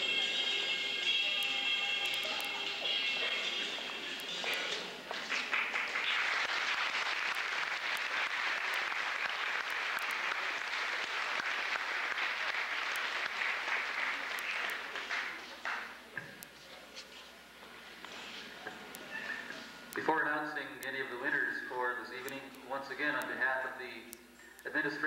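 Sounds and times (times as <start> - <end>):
crowd applauding: 2.0 - 16.0.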